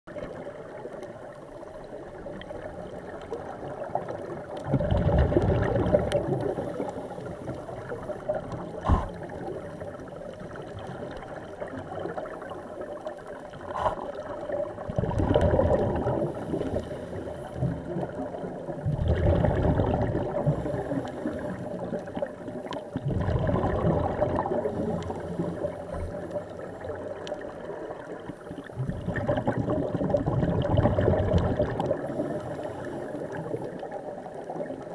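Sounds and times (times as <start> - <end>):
muffled underwater hiss: 0.1 - 34.9
regulator bubbling surge: 23.0 - 24.6.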